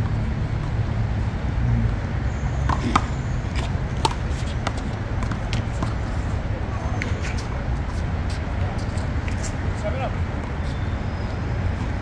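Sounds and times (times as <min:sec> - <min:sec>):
city traffic rumble: 0:00.0 - 0:12.0
players' footsteps tapping on court: 0:02.6 - 0:10.8.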